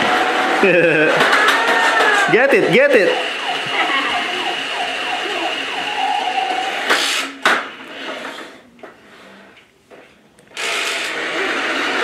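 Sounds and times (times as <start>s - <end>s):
electronic sound effects: 2.7s - 6.9s
toy truck motor whirring: 3.1s - 8.6s, 10.5s - 12.0s.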